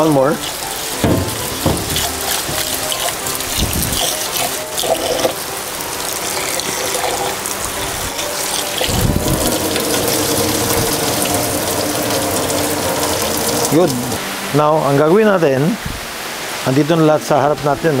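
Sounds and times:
tap water running into bowl: 0:00.0 - 0:14.2
water pouring into sink: 0:00.0 - 0:14.2.

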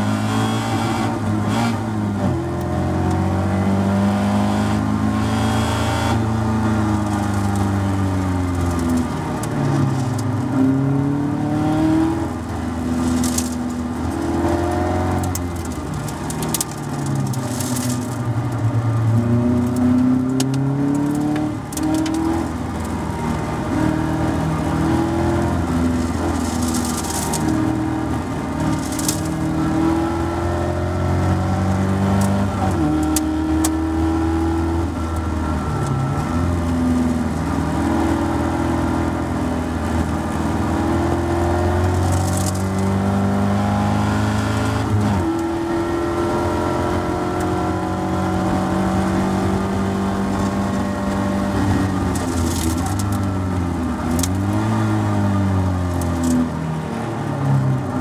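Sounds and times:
race car engine revving: 0:00.0 - 0:36.6.

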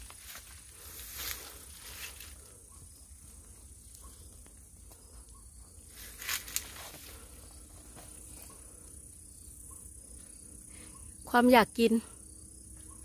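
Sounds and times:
leaves rustling and branches snapping: 0:00.0 - 0:02.4, 0:06.0 - 0:07.2.

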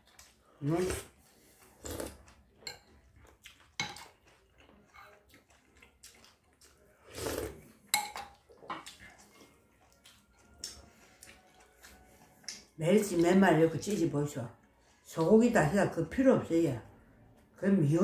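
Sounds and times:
spoon clinking ceramic bowl: 0:08.0 - 0:08.4.

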